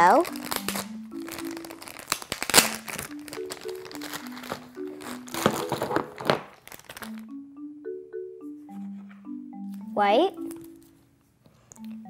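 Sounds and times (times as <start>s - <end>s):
light background music: 0.0s - 6.3s, 7.0s - 12.0s
plastic bag crinkling: 0.0s - 7.3s.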